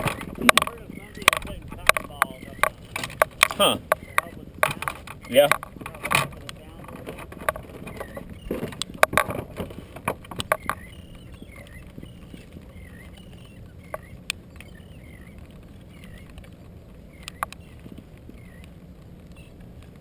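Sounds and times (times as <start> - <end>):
clicks and knocks in plastic kayak: 0.0 - 14.8
wind and water wash: 0.0 - 20.0.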